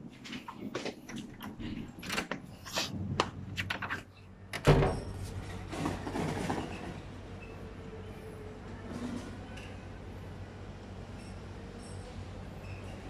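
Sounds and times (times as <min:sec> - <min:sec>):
door opening thump: 0:04.6 - 0:05.1.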